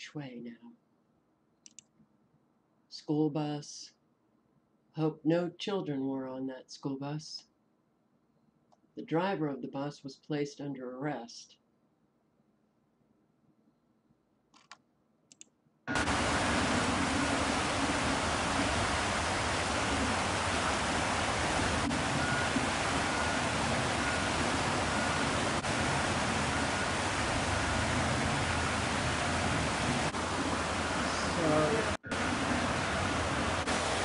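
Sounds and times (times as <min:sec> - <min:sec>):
faint clicks: 0:01.6 - 0:02.1, 0:14.5 - 0:15.6
floodwater rushing: 0:15.9 - 0:34.0.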